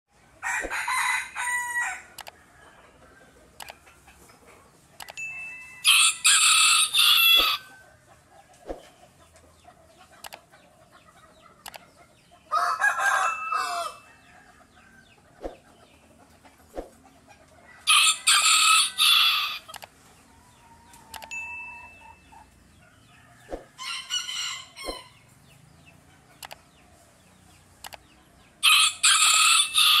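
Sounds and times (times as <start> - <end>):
rooster crowing: 0.4 - 3.0, 5.8 - 7.8, 12.5 - 15.0, 17.8 - 19.7, 23.2 - 25.2, 28.6 - 30.0.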